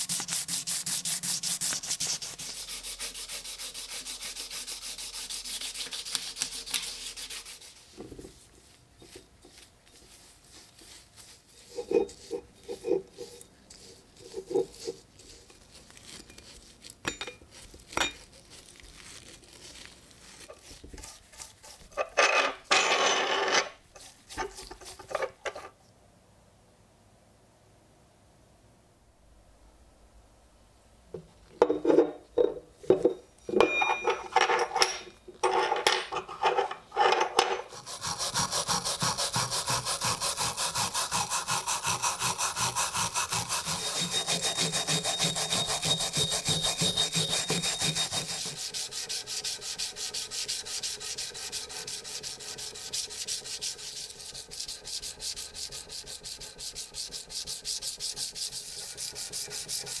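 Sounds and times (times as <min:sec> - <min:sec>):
sandpaper rubbing on metal: 0:00.0 - 0:08.8, 0:09.5 - 0:16.7, 0:17.5 - 0:22.0, 0:37.7 - 1:00.0
scraping strokes on iron: 0:00.0 - 0:16.5, 0:33.7 - 1:00.0.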